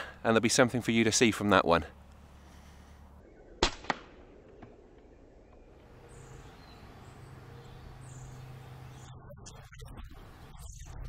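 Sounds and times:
birds chirping faintly: 0:00.0 - 0:03.7, 0:04.3 - 0:11.0
sharp crack: 0:03.6 - 0:05.1.

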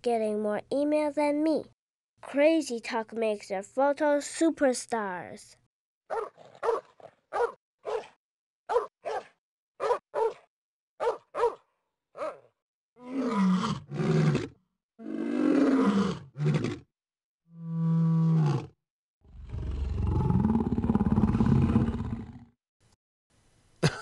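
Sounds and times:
dog yapping: 0:06.1 - 0:10.4, 0:11.0 - 0:11.6, 0:12.2 - 0:12.5
deep drawn-out animal calls: 0:17.5 - 0:22.5.

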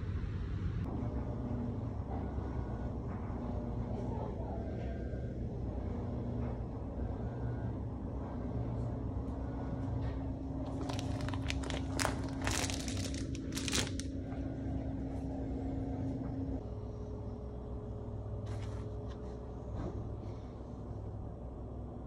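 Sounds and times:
steady hum: 0:05.4 - 0:22.0
plastic bags crinkling: 0:10.6 - 0:14.1.

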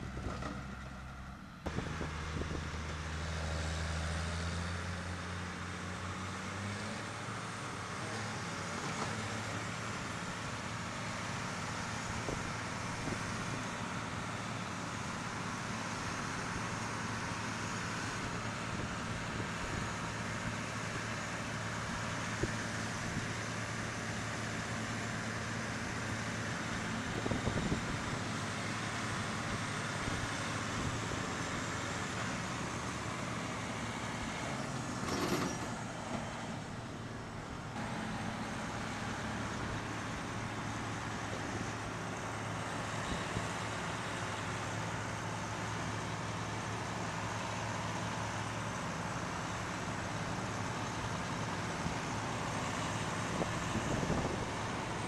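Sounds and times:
tractor diesel engines running: 0:00.0 - 0:55.0
loud clatter: 0:35.0 - 0:35.8.

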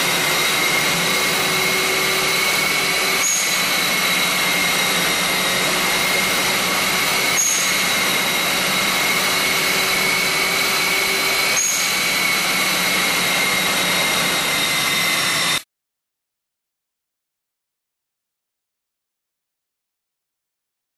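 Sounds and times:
machine rushing with high whine: 0:00.0 - 0:15.6.

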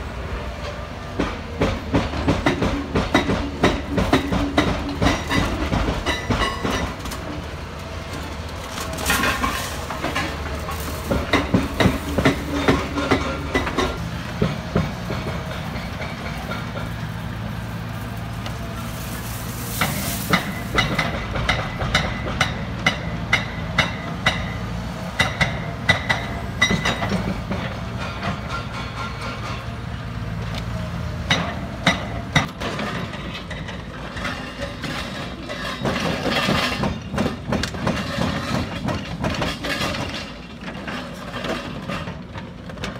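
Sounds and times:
diesel engines running: 0:00.0 - 0:42.9
rough noisy clatter: 0:08.1 - 0:24.6, 0:31.3 - 0:42.9.

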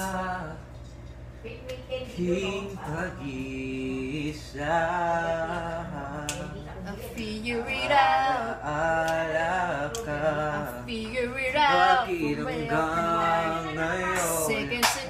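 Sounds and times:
man singing: 0:00.0 - 0:00.8, 0:02.2 - 0:14.8
woman singing: 0:06.2 - 0:08.6, 0:09.9 - 0:15.0.

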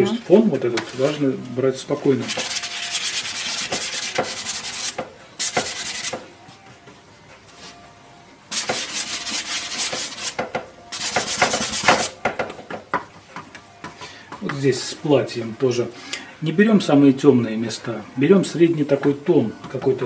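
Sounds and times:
paintbrush scrubbing on canvas: 0:02.2 - 0:06.1.

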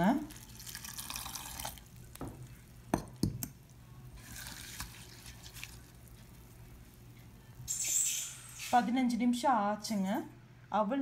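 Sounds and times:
water pouring into bowl: 0:00.3 - 0:02.0.

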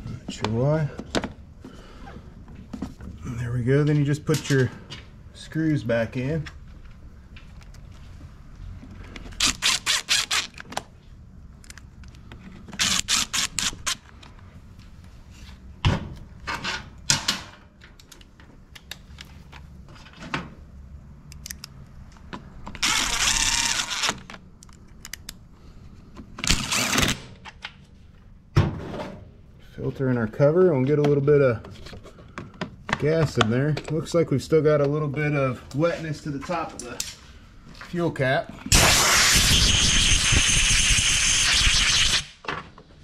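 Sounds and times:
power driver running screws: 0:09.4 - 0:10.6, 0:12.8 - 0:14.0, 0:22.8 - 0:24.2, 0:26.5 - 0:27.3.

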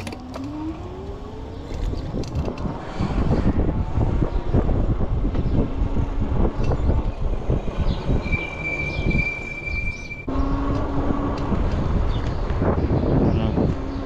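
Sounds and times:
bike road rumble: 0:00.0 - 0:14.0
wind buffeting microphone: 0:00.0 - 0:14.0
steady high squeal: 0:06.6 - 0:10.6.

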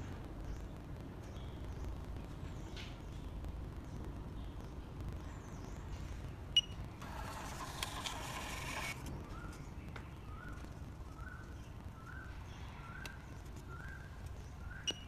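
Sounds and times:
receipt printer running: 0:07.0 - 0:09.0.

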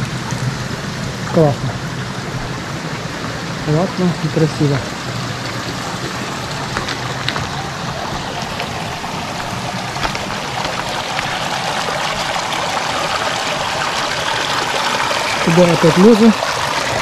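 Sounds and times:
river running over stones: 0:00.0 - 0:17.0.

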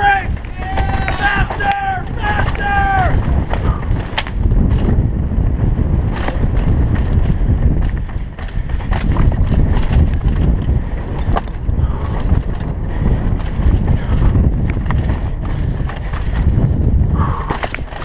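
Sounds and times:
bike clattering over rocks: 0:00.0 - 0:18.0
bike tyres rumbling on rocky trail: 0:00.0 - 0:18.0
wind buffeting microphone: 0:00.0 - 0:18.0.

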